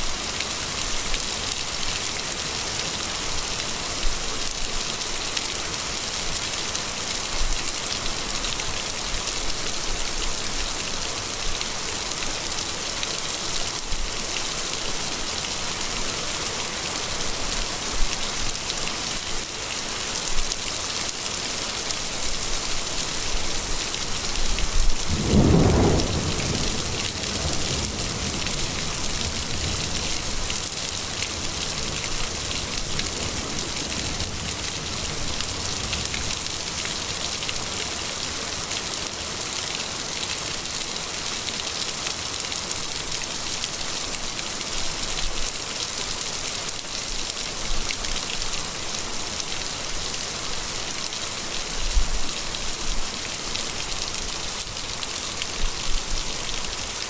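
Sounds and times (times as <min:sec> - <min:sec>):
heavy rain pouring: 0:00.0 - 0:57.0
low rumble of thunder: 0:24.8 - 0:30.1.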